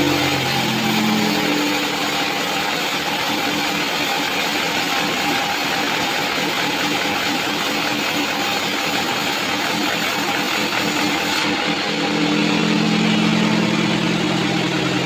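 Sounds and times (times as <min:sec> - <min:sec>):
band saw cutting wood: 0:00.0 - 0:15.0.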